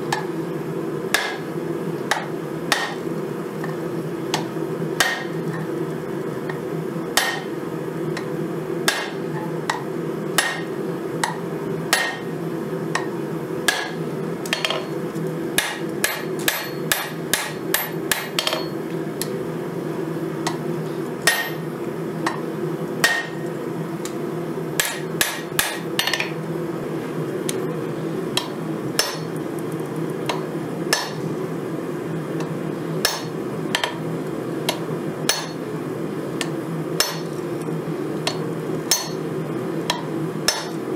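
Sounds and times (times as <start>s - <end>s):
hammer striking hot steel: 1.1s - 1.5s, 2.1s - 3.0s, 4.3s - 5.4s, 7.2s - 7.5s, 8.9s - 9.8s, 10.4s - 12.3s, 13.7s - 14.9s, 15.6s - 18.8s, 21.2s - 21.6s, 23.0s - 23.4s, 24.8s - 26.4s, 28.4s - 29.3s, 30.3s - 31.2s, 33.0s - 34.0s, 34.7s - 35.6s, 37.0s - 37.3s, 38.3s - 39.2s, 39.9s - 40.8s.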